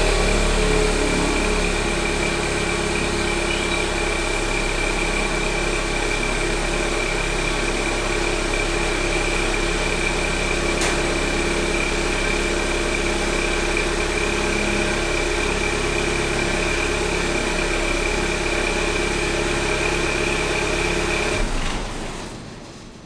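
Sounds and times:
high turbo whine: 0.0s - 21.6s
car engine idling: 0.0s - 22.1s.

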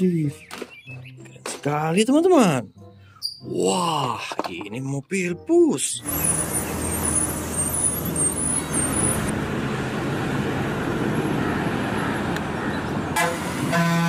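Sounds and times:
bus engine running: 6.0s - 14.0s
traffic noise: 6.0s - 14.0s.

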